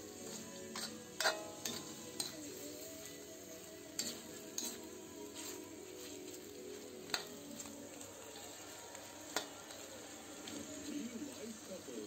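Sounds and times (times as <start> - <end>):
meat sizzling in a wok: 0.0 - 12.0
ladle clinking against wok: 0.2 - 2.5, 4.0 - 4.9.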